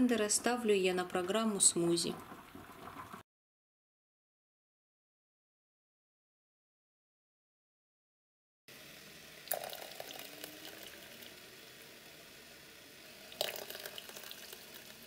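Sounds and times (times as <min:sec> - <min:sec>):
puree pouring into a pot: 0:09.2 - 0:15.0.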